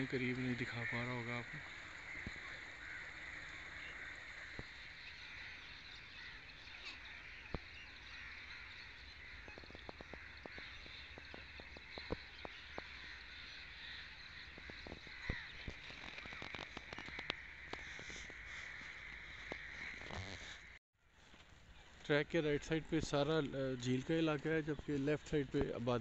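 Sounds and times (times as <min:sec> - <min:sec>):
waterfowl flock calling: 0:00.0 - 0:20.8.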